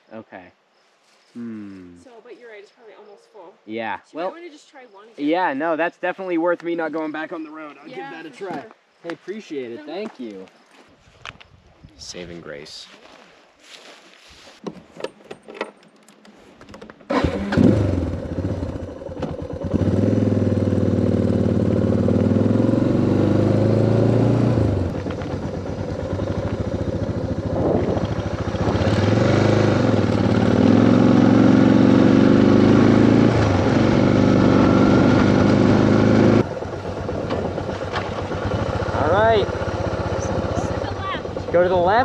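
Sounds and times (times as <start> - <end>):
motorcycle engine revving: 17.1 - 42.0.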